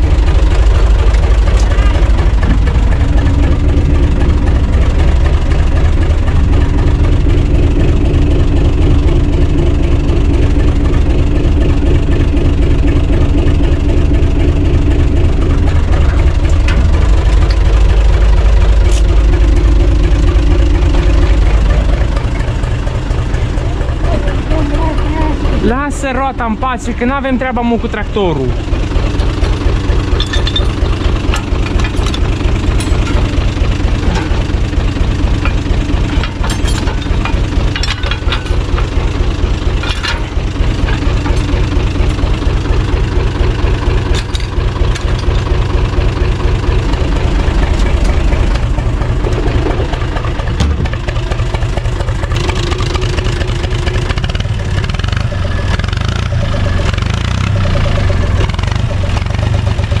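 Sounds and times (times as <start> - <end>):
tractor diesel engine idling: 0.0 - 60.0
sharp metallic clanks: 29.1 - 42.9.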